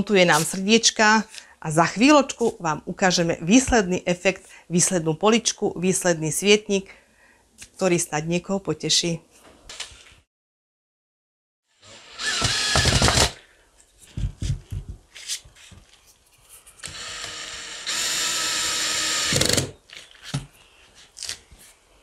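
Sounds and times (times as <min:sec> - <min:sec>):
cordless drill driving screws: 0:11.8 - 0:13.4, 0:16.8 - 0:19.8.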